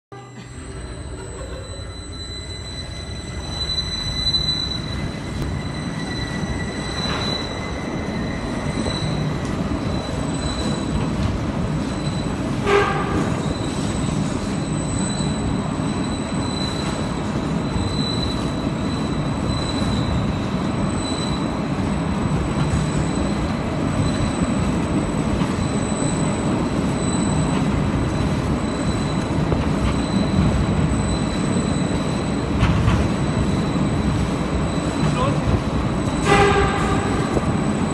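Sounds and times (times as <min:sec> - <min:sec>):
thin high whine: 0:00.1 - 0:11.1.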